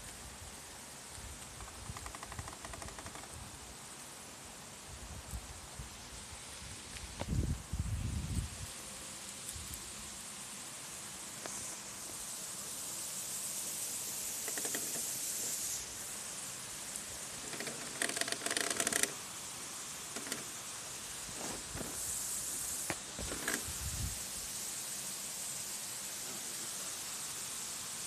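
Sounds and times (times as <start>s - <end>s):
outdoor hiss: 0.0s - 28.0s
faint clicks: 1.1s - 3.4s.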